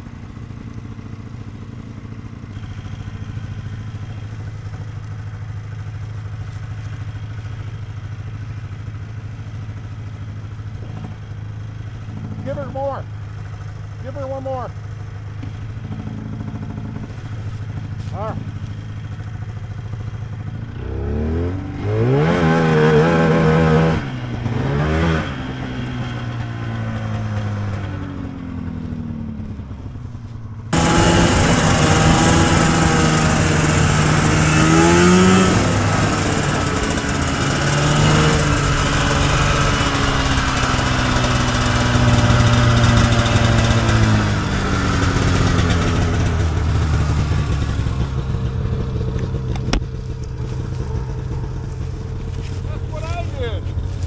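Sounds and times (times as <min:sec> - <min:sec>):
snowmobile engine revving: 0:11.9 - 0:14.8, 0:15.4 - 0:19.4, 0:20.0 - 0:29.6, 0:30.7 - 0:54.0.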